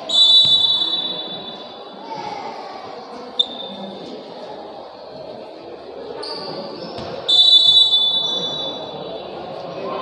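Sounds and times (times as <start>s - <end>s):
referee's whistle blast: 0.0s - 1.6s, 7.3s - 9.1s
murmur of gym hall: 0.0s - 10.0s.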